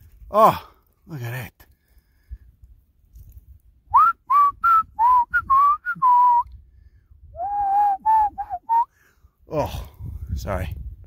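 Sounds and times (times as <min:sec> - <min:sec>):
man whistling a tune: 0:03.9 - 0:06.6, 0:07.2 - 0:08.9.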